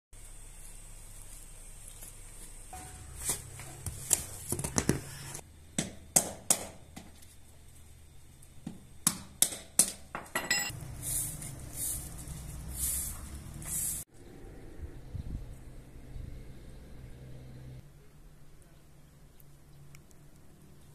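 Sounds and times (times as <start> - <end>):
broom sweeping paved floor: 0.2 - 5.4, 10.7 - 14.1.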